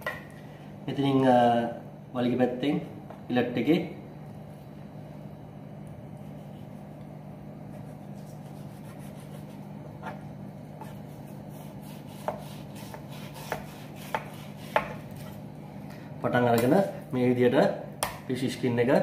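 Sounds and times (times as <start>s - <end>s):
steady low hum: 0.0s - 19.0s
knife on wooden cutting board: 7.8s - 10.2s, 10.8s - 15.4s.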